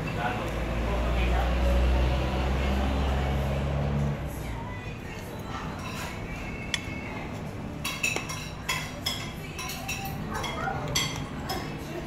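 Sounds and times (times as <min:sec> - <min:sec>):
cutlery clinking on plate: 0:07.8 - 0:11.8.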